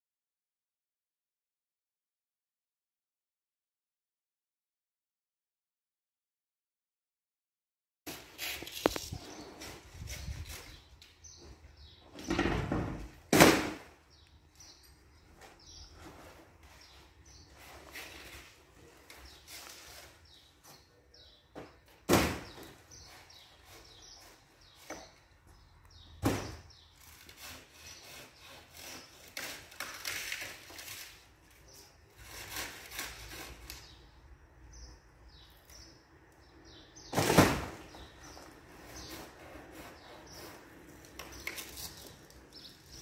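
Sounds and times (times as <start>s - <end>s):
small birds chirping: 8.4s - 13.2s, 14.0s - 43.0s.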